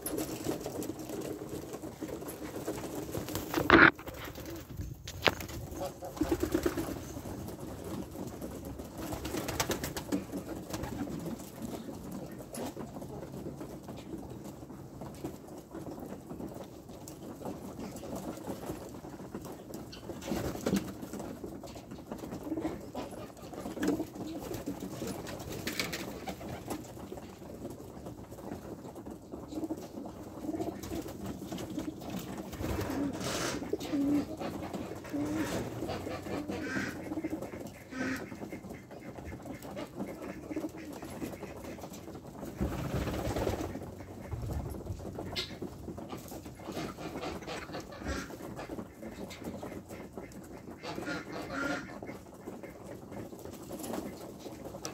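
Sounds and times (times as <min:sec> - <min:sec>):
pigeons cooing: 0:22.2 - 0:26.8, 0:29.5 - 0:42.0.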